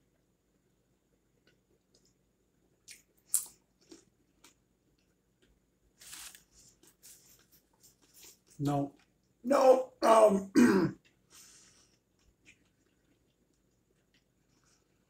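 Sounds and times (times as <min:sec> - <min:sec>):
crunching while eating: 0:01.4 - 0:09.3, 0:11.0 - 0:15.0.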